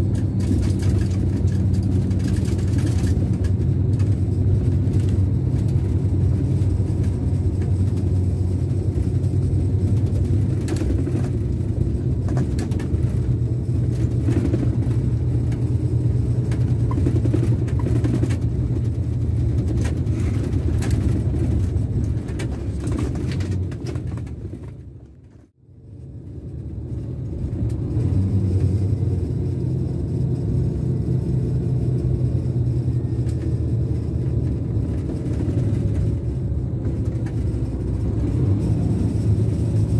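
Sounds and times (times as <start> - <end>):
diesel engine rumble: 0.0 - 39.9
light ticks and rattles: 0.1 - 25.4, 30.2 - 39.9.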